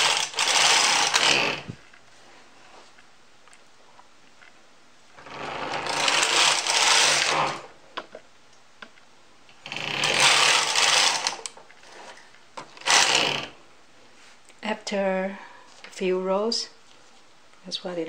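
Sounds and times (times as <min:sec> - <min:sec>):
knitting machine carriage sweeping: 0:00.0 - 0:01.7, 0:05.3 - 0:07.7, 0:10.0 - 0:12.2.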